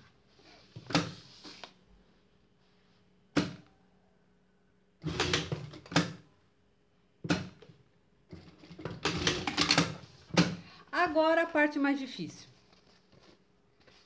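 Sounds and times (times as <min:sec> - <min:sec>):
sewing machine stitching: 0:05.0 - 0:06.2, 0:08.3 - 0:10.1.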